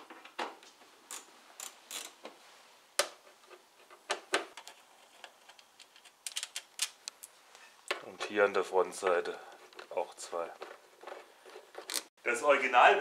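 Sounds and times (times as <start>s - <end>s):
tools and plastic cover clacking: 7.8s - 12.1s.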